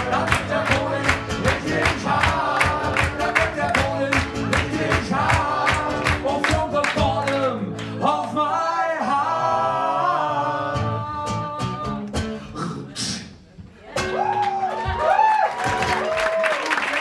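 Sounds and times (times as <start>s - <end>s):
acoustic guitar strumming: 0.0s - 8.0s
man singing: 0.0s - 13.2s.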